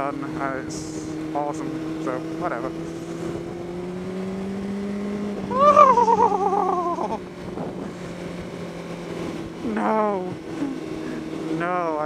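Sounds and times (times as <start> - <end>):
motorcycle engine running: 0.0 - 12.0
person moaning: 5.5 - 7.2, 9.6 - 11.3.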